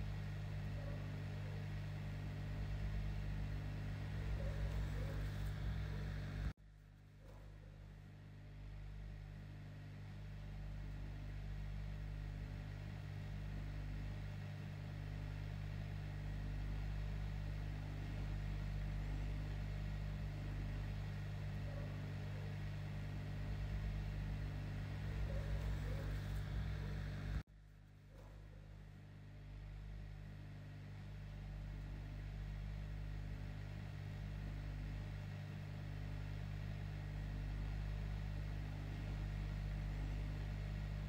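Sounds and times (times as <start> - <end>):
hot air blower hum: 0.0 - 6.6, 7.2 - 27.4.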